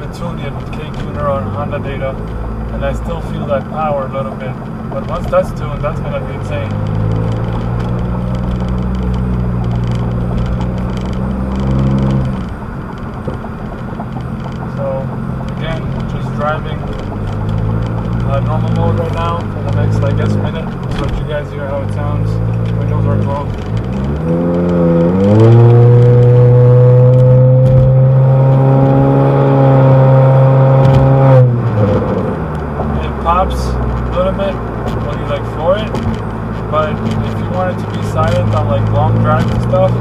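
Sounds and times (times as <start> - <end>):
car exhaust heard from cabin: 0.0 - 40.0.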